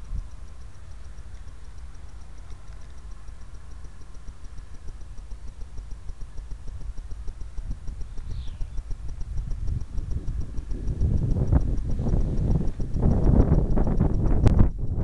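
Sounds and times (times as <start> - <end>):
faint high ticking: 0.0 - 15.0
wind buffeting microphone: 6.4 - 15.0
high falling chirp: 7.9 - 9.2.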